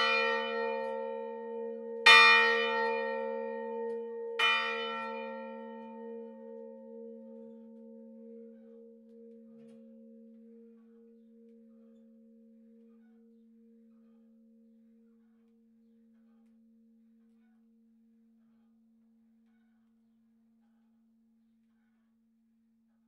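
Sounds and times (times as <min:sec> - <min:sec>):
church bell hum: 0:00.0 - 0:11.7.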